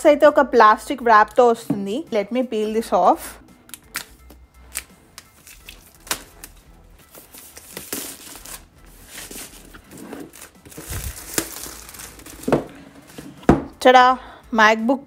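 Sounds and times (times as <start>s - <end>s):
plastic shrink wrap crackling: 7.3s - 12.7s.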